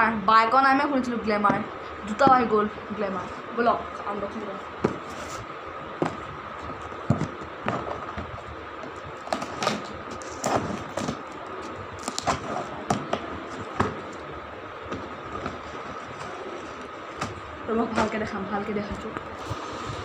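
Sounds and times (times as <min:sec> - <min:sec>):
faint hum: 0:00.0 - 0:20.0
wrapping paper rustling: 0:06.1 - 0:14.3.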